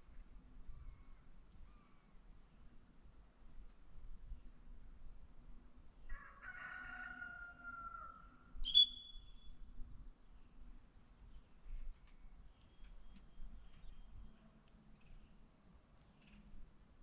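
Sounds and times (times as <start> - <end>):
rooster crowing: 6.1 - 8.3
dog whistle blast: 8.7 - 9.2.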